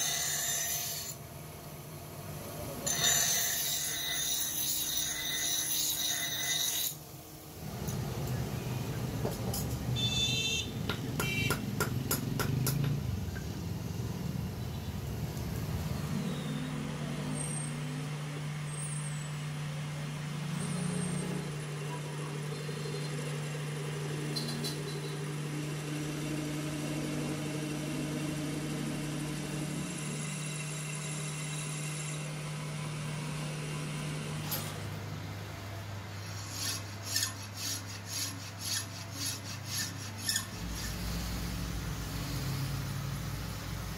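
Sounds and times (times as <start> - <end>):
metal lathe humming: 16.3 - 35.0, 35.7 - 43.9
hand file rasping on metal: 36.2 - 41.2.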